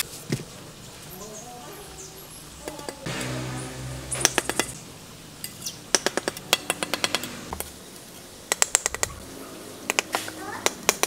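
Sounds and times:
trowel tapping bricks: 5.9 - 7.7, 8.5 - 9.2, 9.9 - 11.0.

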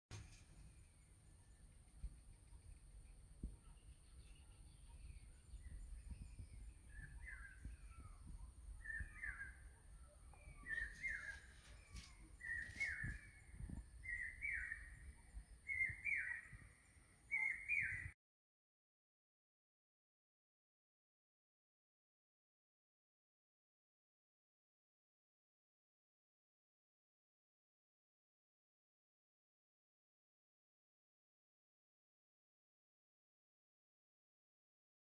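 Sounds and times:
low wind rumble: 0.6 - 17.3
bird calling paired notes: 3.6 - 16.7, 17.3 - 18.2.

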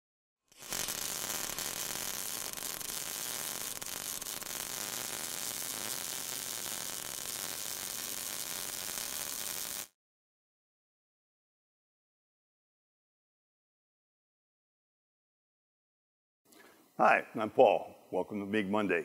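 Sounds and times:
welding arc crackling and hissing: 0.5 - 10.0.

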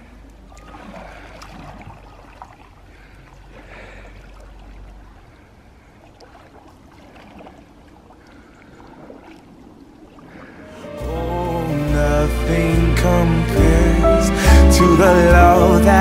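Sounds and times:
paddles splashing in water: 0.0 - 11.0.

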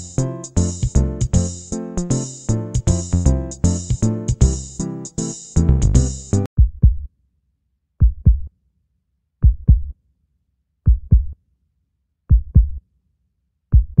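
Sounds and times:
heartbeat double thump: 6.6 - 7.1, 8.0 - 8.5, 9.4 - 9.9, 10.9 - 11.4, 12.3 - 12.8, 13.8 - 14.0.

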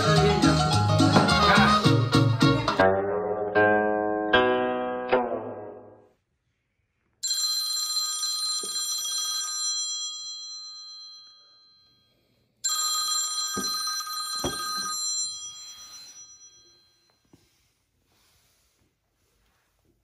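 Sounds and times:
smartphone ringtone chiming: 7.2 - 12.0, 12.7 - 17.2.

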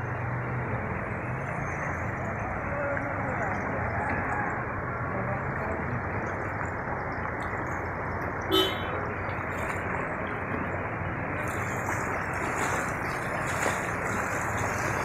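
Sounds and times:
seawater rushing across street: 0.0 - 15.0
vehicle horn toot: 8.5 - 9.0.

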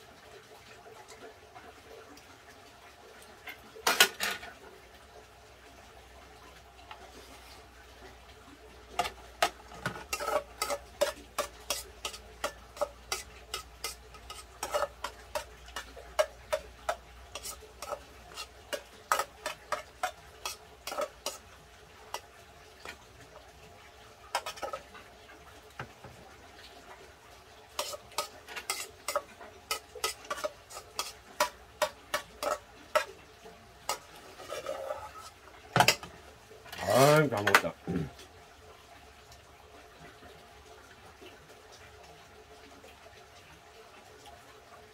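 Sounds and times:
cutlery clinking against a pot: 3.8 - 4.6, 9.0 - 21.5, 24.3 - 24.9, 27.7 - 33.2, 33.8 - 36.1.

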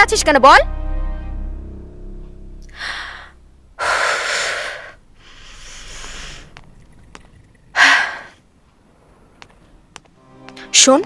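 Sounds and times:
woman breathing hard: 2.6 - 6.6, 7.8 - 8.4.

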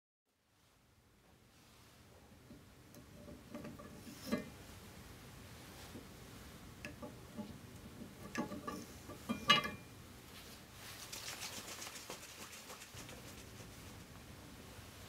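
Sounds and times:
glass tubes and stoppers handled: 8.1 - 9.8
glass clink: 8.7 - 9.9.

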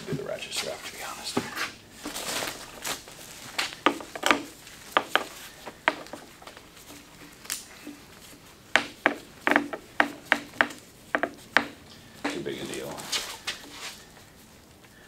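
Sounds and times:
bubble wrap crinkling: 0.0 - 15.0
ratchet strap clicks and knocks: 3.8 - 12.4.

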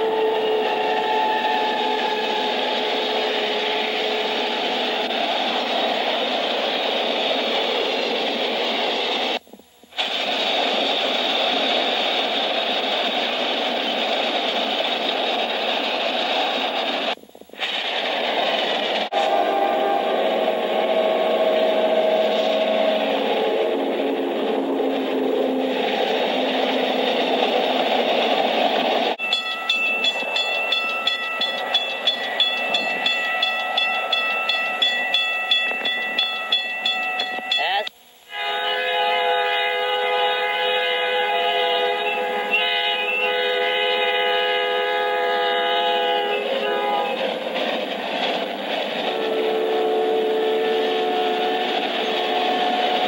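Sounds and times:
freight train cars rolling: 0.0 - 53.0
crossing bell ringing: 29.2 - 37.9.

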